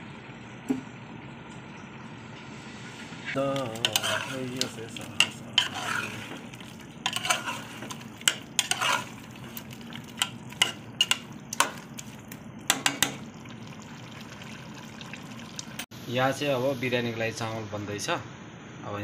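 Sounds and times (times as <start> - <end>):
metal ladle scraping pot: 3.7 - 11.8.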